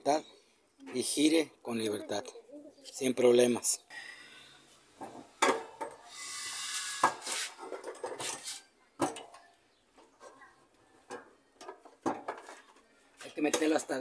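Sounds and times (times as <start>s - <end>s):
metal scraping rub: 6.1s - 8.7s.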